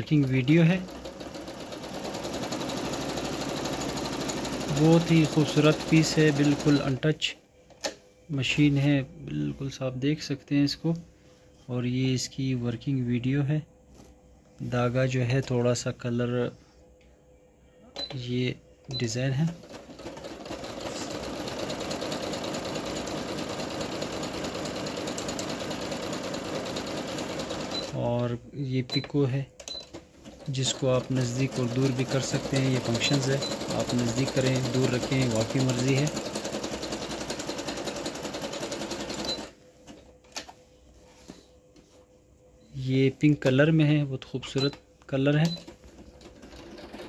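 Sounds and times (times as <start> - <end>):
sewing machine running: 0.0 - 7.0, 19.4 - 28.0, 30.2 - 39.5, 46.1 - 47.0.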